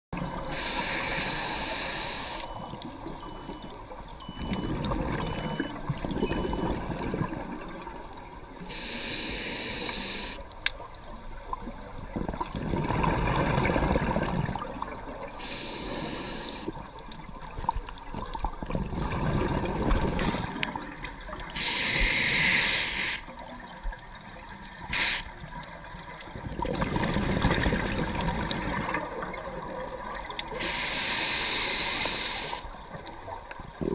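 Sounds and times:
exhaled bubbles hissing: 0.2s - 3.4s, 8.6s - 10.4s, 12.0s - 16.9s, 18.2s - 23.4s, 24.7s - 33.9s
underwater regulator breathing: 0.2s - 3.6s, 8.6s - 10.4s, 15.3s - 16.8s, 21.6s - 23.3s, 24.9s - 25.4s, 30.5s - 32.8s.

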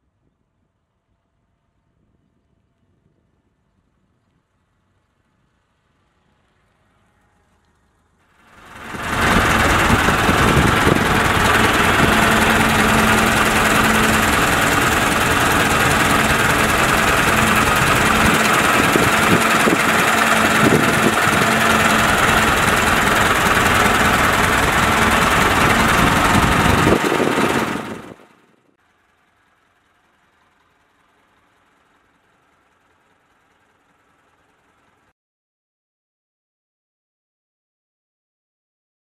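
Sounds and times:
car engine idling: 8.5s - 28.3s, 28.9s - 35.0s.

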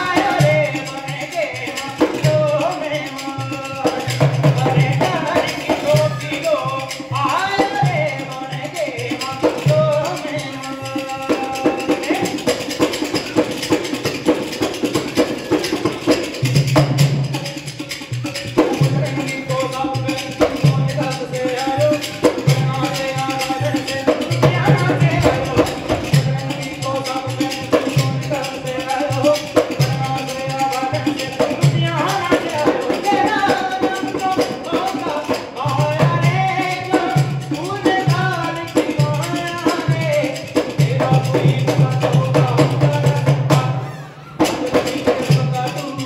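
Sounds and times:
fast rattling percussion: 0.0s - 46.0s
low drum beat: 22.2s - 30.2s.

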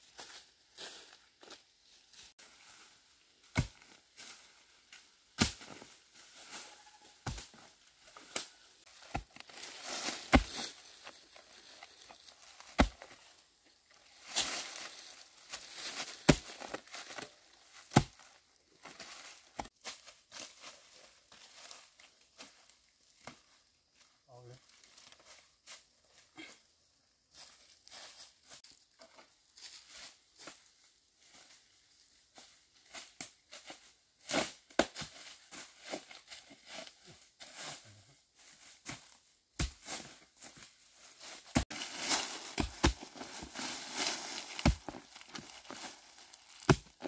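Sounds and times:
hoe chopping into soil: 3.5s - 3.9s, 5.4s - 5.9s, 8.3s - 10.8s, 12.6s - 13.2s, 15.9s - 17.3s, 17.9s - 18.2s, 41.5s - 45.9s, 46.5s - 47.0s
dry leaves crackling and rustling: 6.0s - 7.2s, 8.4s - 17.8s, 40.3s - 47.0s.

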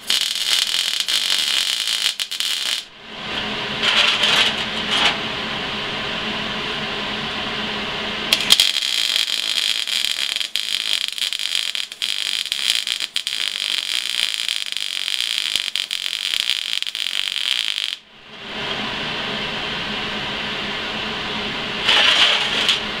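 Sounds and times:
welding arc crackling: 0.0s - 2.9s, 8.3s - 18.0s.

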